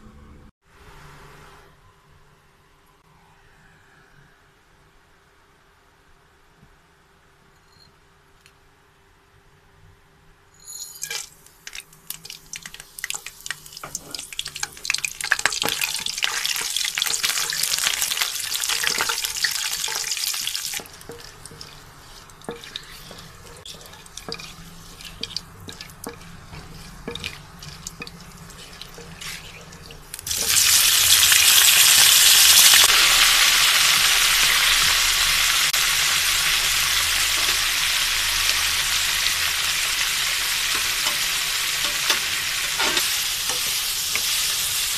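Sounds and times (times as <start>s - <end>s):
meat sizzling in oil: 11.0s - 44.9s
spices crackling in hot oil: 11.0s - 44.9s.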